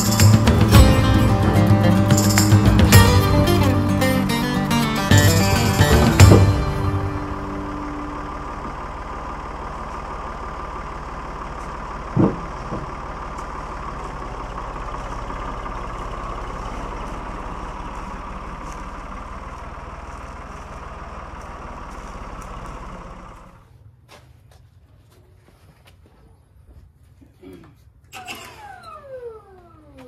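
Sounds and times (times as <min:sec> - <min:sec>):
engine idling: 0:00.0 - 0:23.8
heavy thump: 0:05.1 - 0:07.8, 0:12.1 - 0:13.0.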